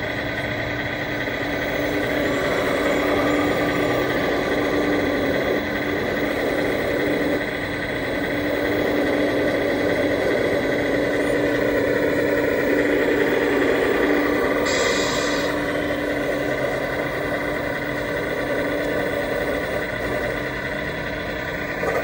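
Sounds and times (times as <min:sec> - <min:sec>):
engine running with hum: 0:00.0 - 0:22.0
short high hiss: 0:14.6 - 0:15.5.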